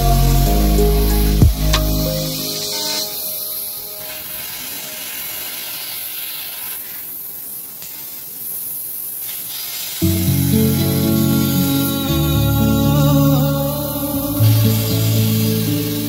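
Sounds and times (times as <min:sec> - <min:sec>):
music: 0:00.0 - 0:04.8, 0:10.0 - 0:16.0
laser cutter hissing: 0:00.0 - 0:16.0.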